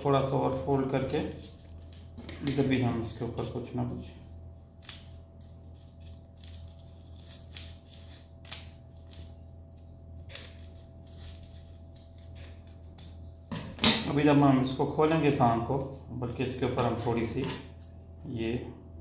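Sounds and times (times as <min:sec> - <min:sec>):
steady low hum: 0:00.0 - 0:19.0
scissors cutting paper: 0:04.8 - 0:09.4, 0:10.2 - 0:13.2.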